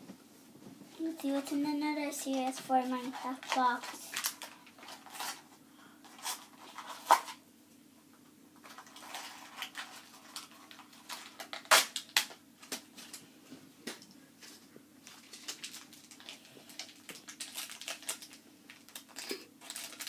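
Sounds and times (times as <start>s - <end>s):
packaging crinkling: 8.6s - 13.2s, 15.0s - 20.0s.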